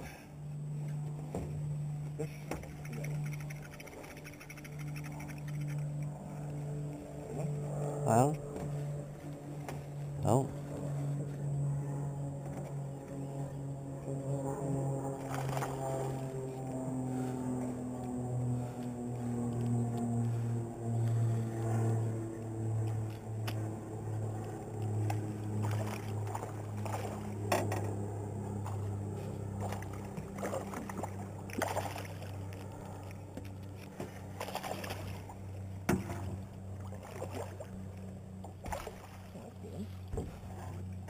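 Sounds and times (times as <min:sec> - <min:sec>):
low hum: 0:00.0 - 0:41.0
fish splashing at surface: 0:29.6 - 0:32.3
knocks on boat: 0:35.8 - 0:36.4.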